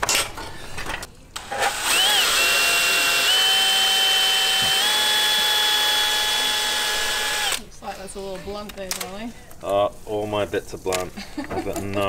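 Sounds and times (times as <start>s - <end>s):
cordless drill motor whining: 1.4s - 7.6s.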